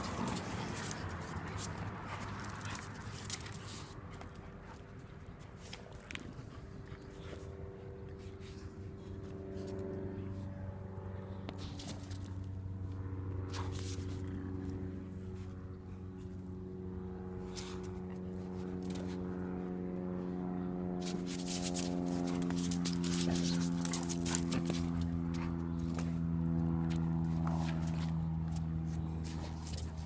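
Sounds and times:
dogs play-wrestling scuffling: 0.0s - 7.6s, 21.0s - 26.2s
low mechanical hum: 0.0s - 30.0s.

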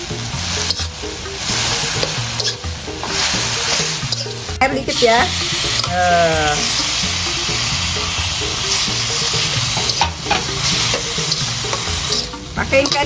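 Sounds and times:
vegetables sizzling in a wok: 0.0s - 13.0s
metal spatula scraping pan: 0.6s - 5.9s, 8.7s - 13.0s.

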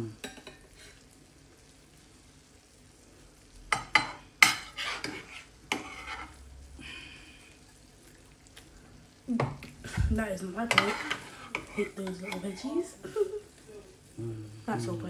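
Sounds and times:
metal spatula scraping ceramic dish: 4.0s - 6.4s, 10.7s - 12.7s.

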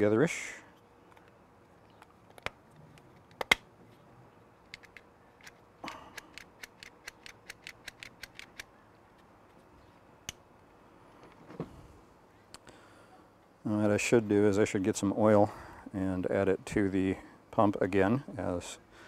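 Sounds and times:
plastic switch parts clicking: 4.7s - 8.7s.

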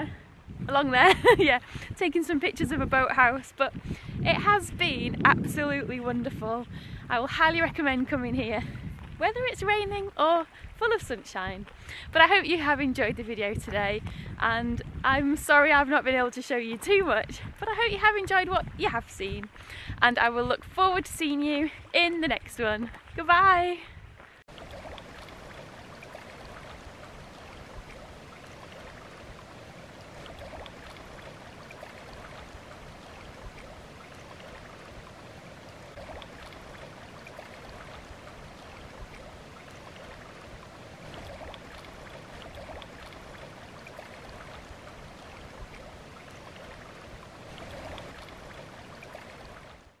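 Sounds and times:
faint water splashes: 0.0s - 50.0s
small waves lapping on stony shore: 24.1s - 50.0s.

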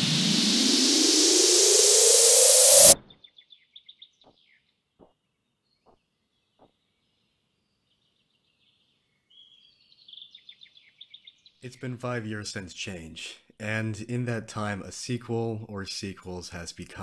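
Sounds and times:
loud rising whoosh: 0.0s - 3.0s
small birds chirping: 3.0s - 12.0s.

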